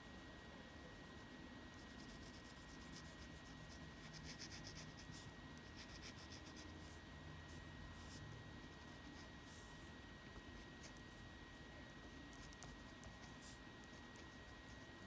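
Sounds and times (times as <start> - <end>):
pen scratching on paper: 1.8 - 7.0.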